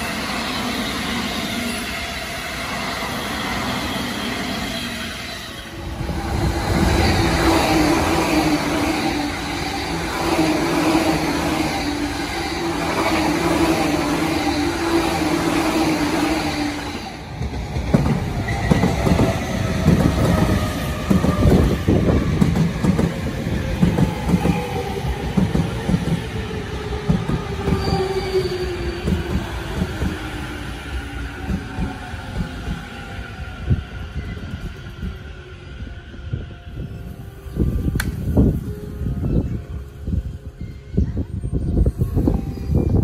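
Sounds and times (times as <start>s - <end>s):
electric train running: 0.0s - 35.3s.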